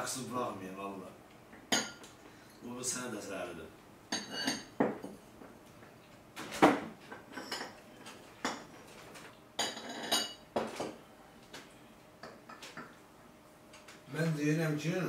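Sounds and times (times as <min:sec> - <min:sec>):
tableware clinking on table: 0:01.7 - 0:02.1, 0:04.1 - 0:05.2, 0:07.1 - 0:07.8, 0:08.4 - 0:09.0, 0:09.6 - 0:11.0.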